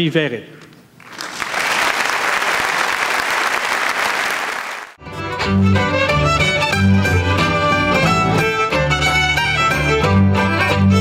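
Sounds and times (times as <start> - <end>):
audience applauding: 1.0 - 5.0
fiddles playing lively tune: 5.0 - 11.0
strummed guitar: 5.0 - 11.0
upright bass: 5.0 - 11.0.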